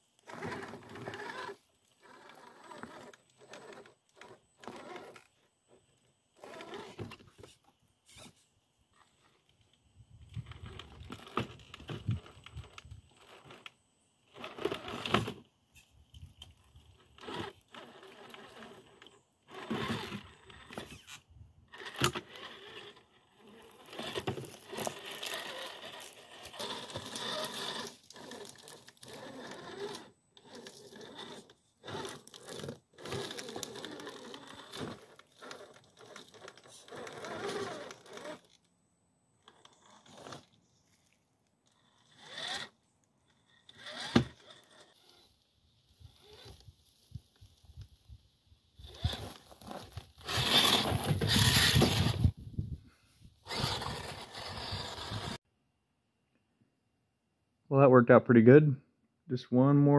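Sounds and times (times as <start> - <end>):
tyres scraping on rock: 0.2 - 5.3, 6.4 - 8.4, 10.4 - 15.4, 16.9 - 38.6, 39.4 - 45.2, 48.8 - 52.4, 53.4 - 55.4
toy motor and gears whirring: 0.2 - 5.4, 6.4 - 7.1, 8.1 - 8.4, 10.3 - 38.6, 39.4 - 40.6, 41.8 - 45.4, 46.0 - 46.8, 48.8 - 52.4, 53.4 - 55.4.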